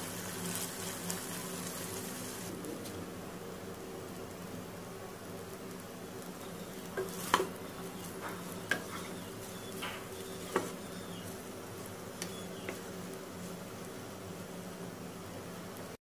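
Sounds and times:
steady low hum: 0:00.0 - 0:16.0
wooden spatula stirring fried rice: 0:05.7 - 0:14.1
spatula knocking against pan: 0:09.8 - 0:10.8.

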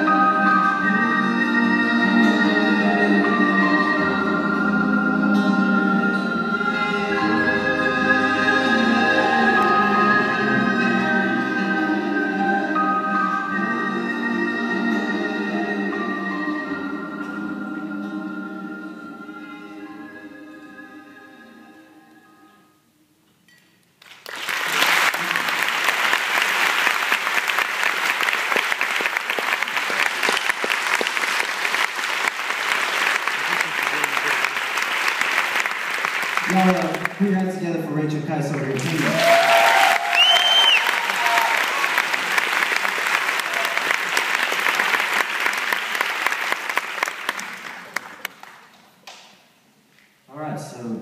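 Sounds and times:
audience applause: 0:24.0 - 0:37.4, 0:38.5 - 0:48.7.

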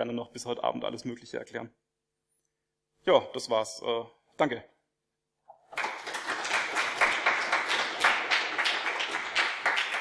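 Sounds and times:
audience applauding: 0:05.7 - 0:10.0.

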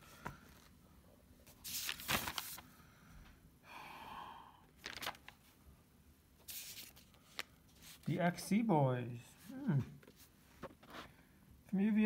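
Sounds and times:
paper pages rustling: 0:01.4 - 0:02.7, 0:04.8 - 0:05.5, 0:06.4 - 0:08.2, 0:10.0 - 0:11.1
soft sighing breath: 0:02.7 - 0:04.8.

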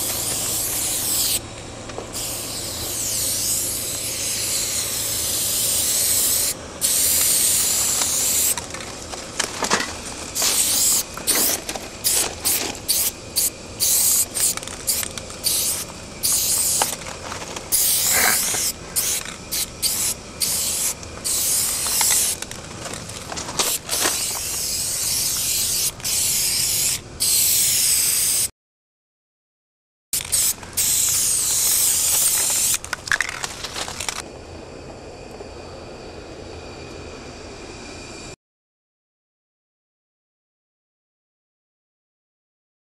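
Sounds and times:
spray paint can hissing: 0:00.0 - 0:01.4, 0:02.1 - 0:08.6, 0:10.3 - 0:17.1, 0:17.7 - 0:22.5, 0:23.6 - 0:28.5, 0:30.2 - 0:34.2.

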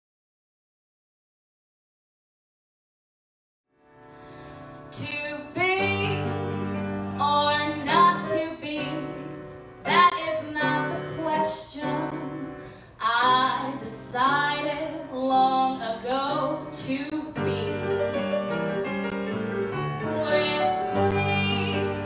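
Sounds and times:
soft piano accompaniment: 0:03.8 - 0:22.0
woman singing a ballad: 0:04.9 - 0:18.2, 0:20.0 - 0:22.0.

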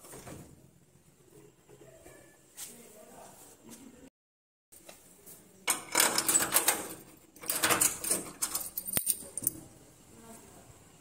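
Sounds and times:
metal door rattling: 0:05.7 - 0:09.4.

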